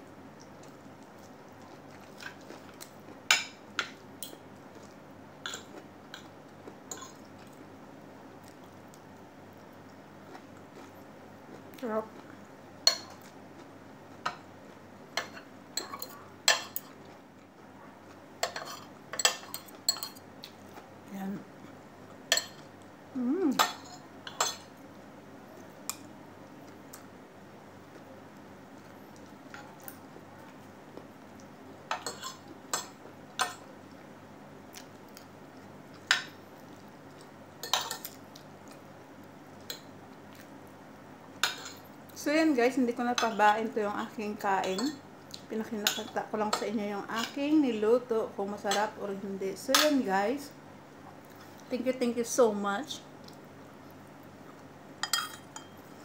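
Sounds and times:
cutlery clinking on plates: 0:55.0 - 0:55.8.

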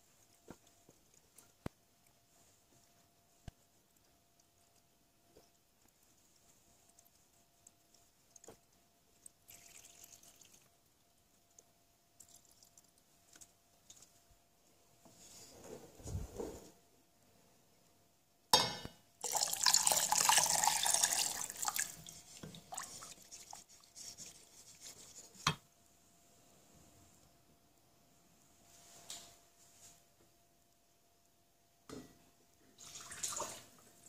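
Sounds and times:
liquid pouring into saucepan: 0:09.2 - 0:10.7, 0:19.2 - 0:23.6, 0:32.8 - 0:33.8.

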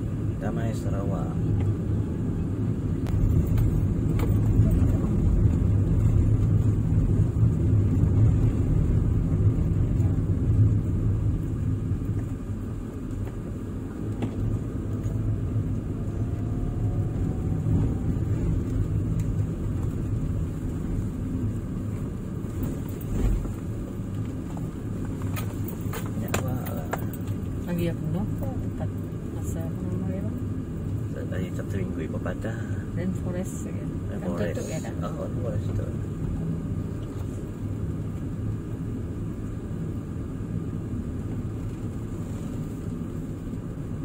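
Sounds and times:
faint rising whine: 0:00.0 - 0:24.9
engine and tyre rumble: 0:00.0 - 0:44.0.

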